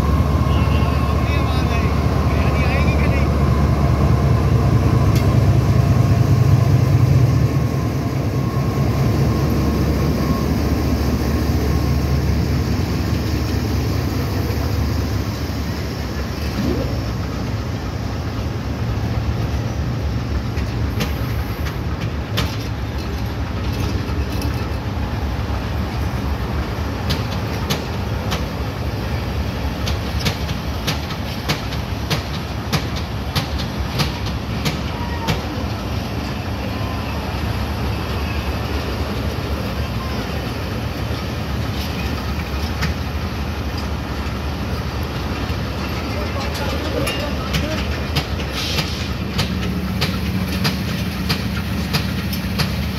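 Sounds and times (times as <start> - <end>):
diesel locomotive engine passing: 0.0 - 52.9
train coaches rumbling: 0.0 - 52.9
wheels clicking over rail joints: 20.4 - 25.0, 27.0 - 28.6, 29.7 - 36.4, 40.4 - 52.9.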